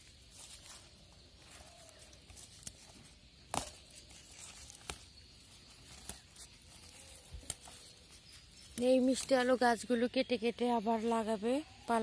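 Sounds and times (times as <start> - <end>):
leaves rustling: 0.0 - 12.0
plant stems snapping: 1.5 - 9.4.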